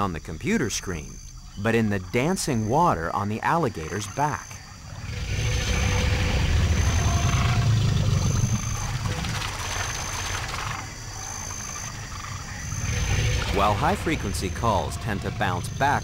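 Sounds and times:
alligator bellowing: 0:04.6 - 0:16.0
water spattering: 0:05.3 - 0:10.9, 0:12.8 - 0:15.6.

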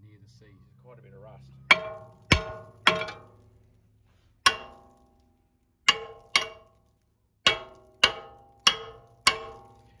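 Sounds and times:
hammer striking metal rotor: 0:01.7 - 0:03.4, 0:04.5 - 0:05.1, 0:05.9 - 0:06.8, 0:07.4 - 0:09.9.

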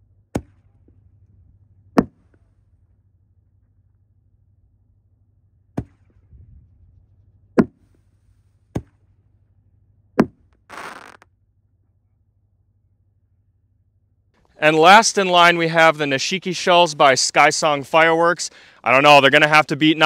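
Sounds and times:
firework bangs: 0:10.6 - 0:11.2.

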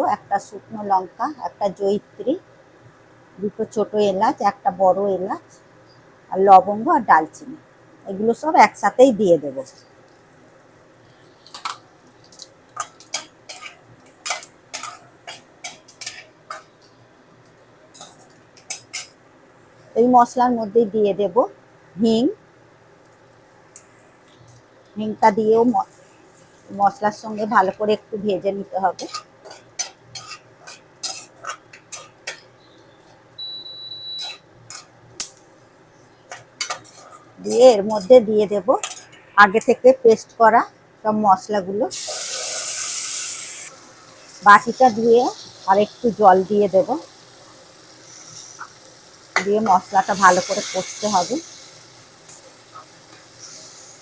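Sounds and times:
spices frying in oil: 0:00.0 - 0:39.1, 0:41.4 - 0:54.0
metal spatula scraping pan: 0:12.8 - 0:16.6, 0:29.0 - 0:32.5, 0:34.2 - 0:34.9, 0:36.4 - 0:38.2.

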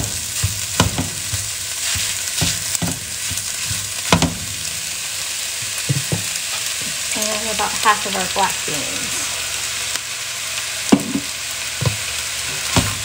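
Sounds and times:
spatula scraping and knocking pan: 0:00.0 - 0:04.7, 0:05.6 - 0:07.0, 0:10.9 - 0:13.0
meat sizzling in a pan: 0:00.0 - 0:13.0.

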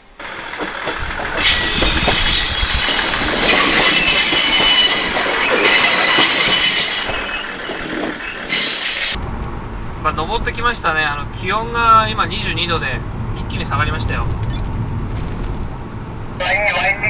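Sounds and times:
railcar rumbling past: 0:00.0 - 0:17.0
high squealing tones: 0:01.4 - 0:09.2.

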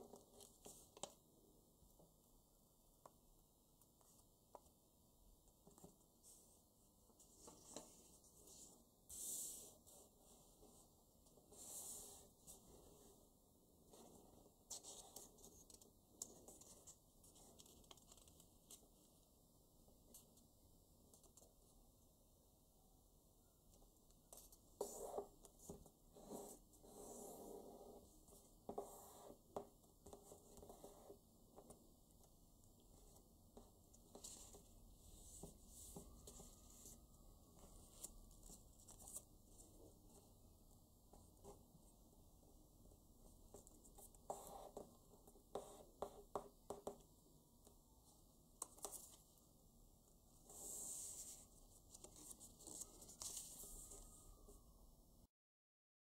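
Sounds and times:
paper rustling and folding: 0:50.7 - 0:54.3.

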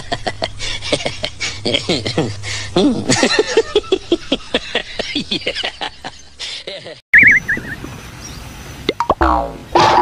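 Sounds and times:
people laughing: 0:00.0 - 0:07.0.

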